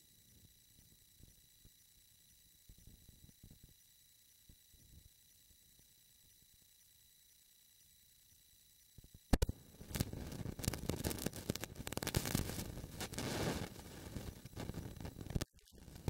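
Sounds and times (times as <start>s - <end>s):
sharp click: 9.3s - 10.0s
crackling rustling on microphone: 9.4s - 16.0s
faint hiss: 9.4s - 16.0s.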